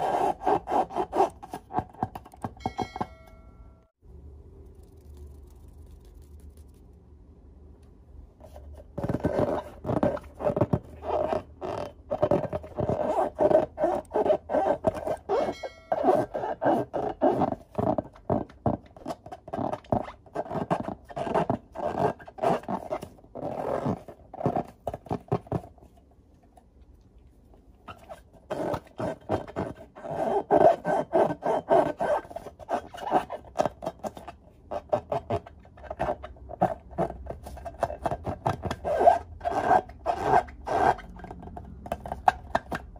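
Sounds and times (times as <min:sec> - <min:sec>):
hands rubbing latex balloons: 0:04.7 - 0:07.0, 0:08.4 - 0:26.0.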